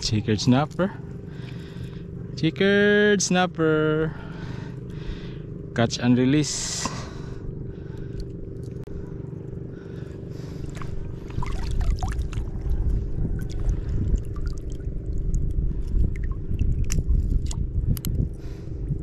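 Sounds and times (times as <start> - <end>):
faint steady hum: 0.0 - 19.0
wind rumble on microphone: 7.0 - 19.0
seawater sloshing and splashing: 9.9 - 17.7.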